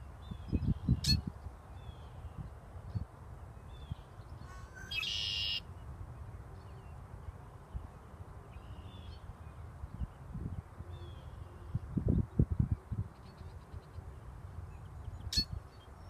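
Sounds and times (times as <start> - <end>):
faint bird chirps: 3.8 - 5.6
bird singing buzzy trill: 3.8 - 5.7.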